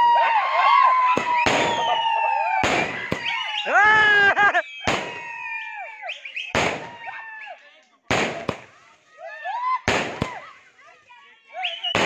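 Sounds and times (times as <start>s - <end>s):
whistling fireworks: 0.9s - 7.2s, 11.6s - 12.0s
firecracker bangs: 1.1s - 2.0s, 2.6s - 3.4s, 4.9s - 5.2s, 6.5s - 7.0s, 8.1s - 8.8s, 9.9s - 10.4s.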